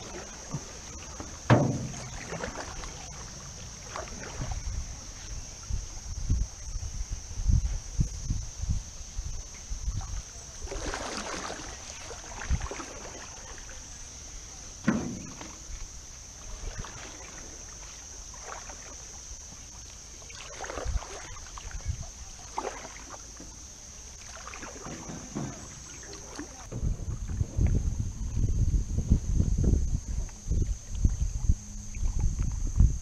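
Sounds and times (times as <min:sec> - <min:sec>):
paddle knocking on canoe: 0:00.0 - 0:04.6, 0:14.8 - 0:16.0, 0:24.2 - 0:28.0
paddles swishing through water: 0:00.0 - 0:28.4.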